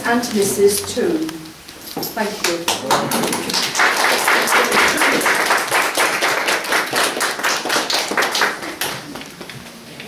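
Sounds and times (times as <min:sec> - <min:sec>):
guests applauding: 0:02.6 - 0:09.4.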